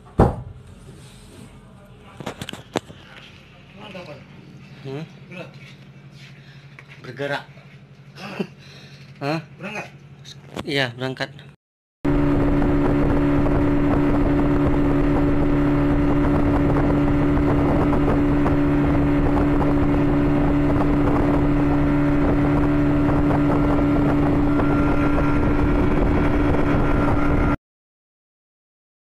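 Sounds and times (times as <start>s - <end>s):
boat engine running: 1.6s - 10.6s, 12.1s - 27.6s
wind: 12.1s - 27.6s.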